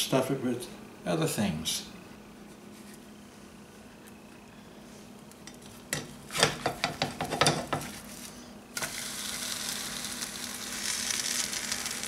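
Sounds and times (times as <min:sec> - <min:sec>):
crepe sizzling in pan: 0:06.3 - 0:12.0.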